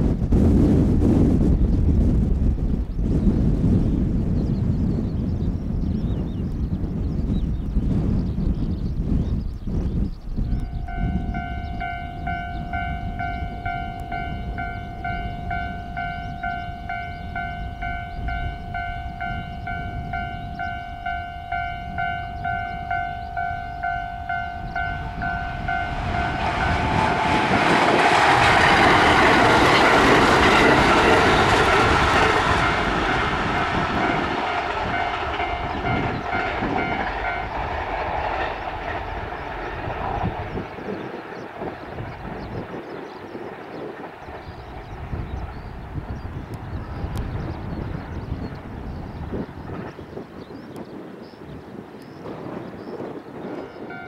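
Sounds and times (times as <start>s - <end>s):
electric train passing: 10.2s - 51.0s, 51.8s - 54.0s
level crossing alarm clanging: 10.6s - 27.0s.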